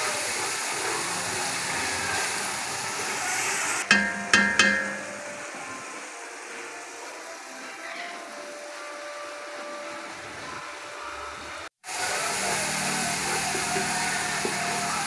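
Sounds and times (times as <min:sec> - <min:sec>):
paste sizzling in oil: 0:11.9 - 0:15.0.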